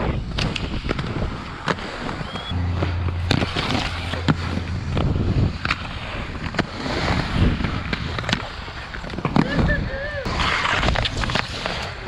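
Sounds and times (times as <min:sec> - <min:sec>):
skate wheels clacking: 0:00.0 - 0:12.0
skate wheels rolling on concrete: 0:00.0 - 0:12.0
low hum: 0:02.2 - 0:07.8.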